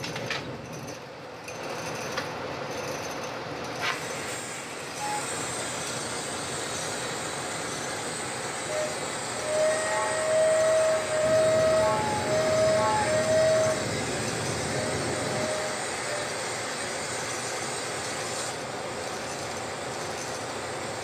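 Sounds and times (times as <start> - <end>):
faint high whine: 4.6 - 17.0
glass lathe rushing: 4.9 - 18.6.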